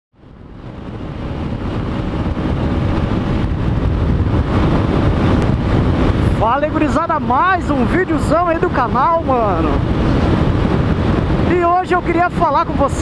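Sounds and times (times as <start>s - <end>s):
wind noise on microphone: 0.1s - 13.0s.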